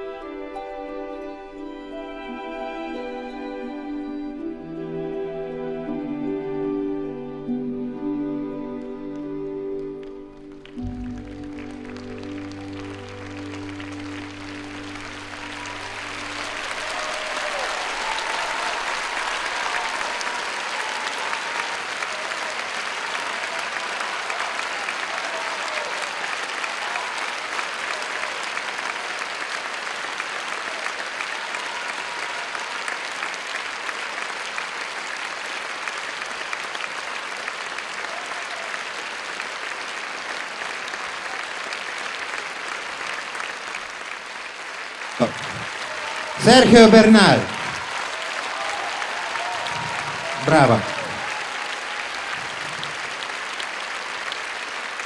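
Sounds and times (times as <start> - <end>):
music with held notes: 0.0 - 18.0
audience applauding: 0.0 - 55.0.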